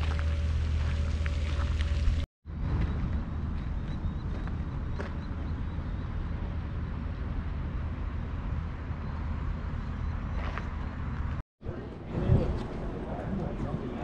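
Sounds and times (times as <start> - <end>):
low rumble: 0.0 - 10.2.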